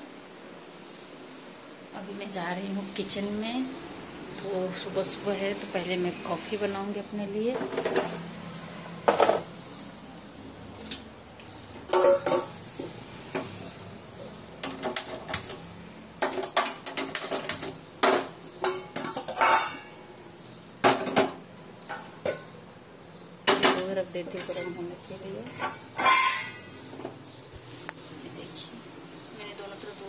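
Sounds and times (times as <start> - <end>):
dishes and utensils clinking: 7.5 - 8.2, 9.0 - 9.5, 10.9 - 13.7, 16.2 - 20.1, 20.8 - 22.5, 23.5 - 27.2.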